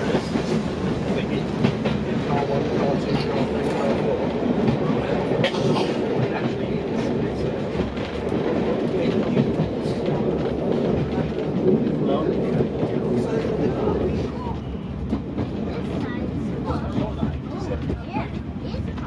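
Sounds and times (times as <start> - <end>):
diesel railcar running: 0.0 - 19.0
train coaches passing: 0.0 - 19.0.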